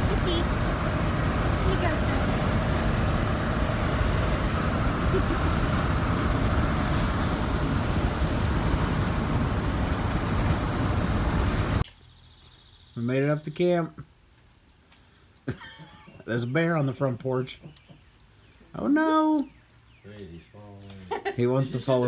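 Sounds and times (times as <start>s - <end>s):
road noise inside truck cab: 0.0s - 12.8s.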